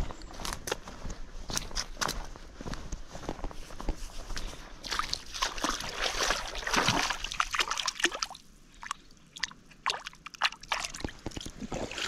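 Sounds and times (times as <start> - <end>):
water sloshing and splashing: 4.8 - 12.0
water dripping: 4.9 - 12.0.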